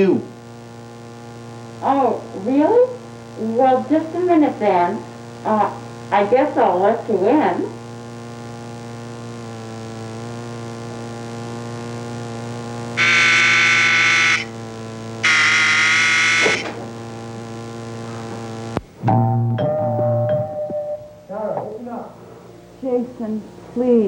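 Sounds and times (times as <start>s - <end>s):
electrical hum: 0.0s - 24.0s
door-entry buzzer: 12.3s - 18.8s.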